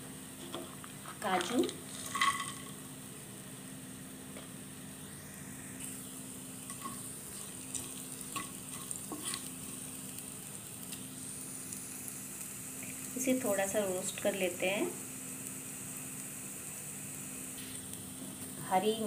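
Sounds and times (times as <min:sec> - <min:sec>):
oil sizzling in a frying pan: 0:00.1 - 0:19.0
spatula scraping and tapping pan: 0:00.4 - 0:02.8, 0:06.7 - 0:09.5.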